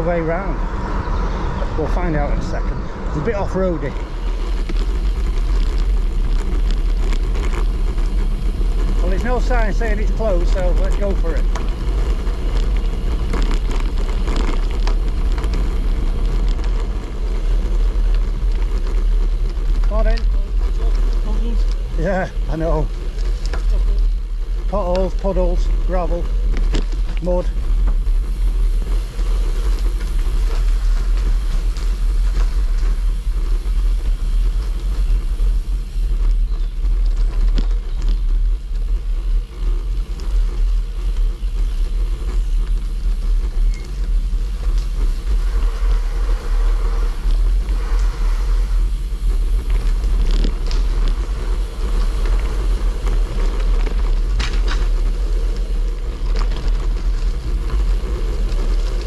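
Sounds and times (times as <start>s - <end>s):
bike tyres rumbling on rough track: 0.0s - 59.0s.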